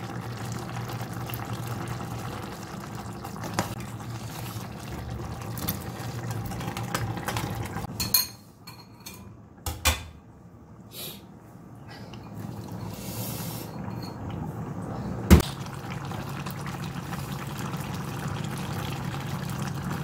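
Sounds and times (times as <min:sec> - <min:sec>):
stew boiling in a pot: 0:00.0 - 0:08.0, 0:12.1 - 0:20.0.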